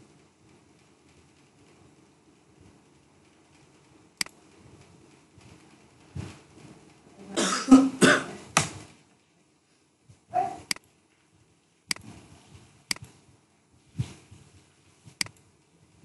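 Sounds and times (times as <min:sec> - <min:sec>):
person coughing: 0:07.4 - 0:08.4.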